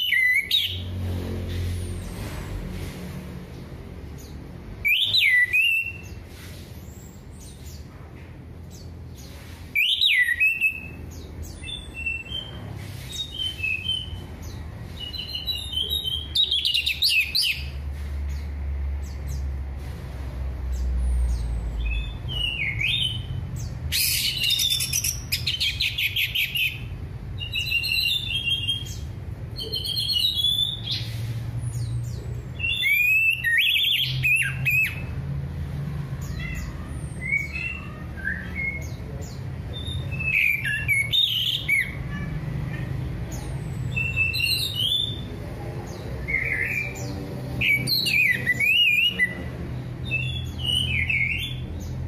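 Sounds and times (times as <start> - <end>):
thrush singing whistled phrases: 4.8 - 6.2, 9.8 - 11.0, 32.6 - 35.0, 43.9 - 45.2, 47.6 - 49.4.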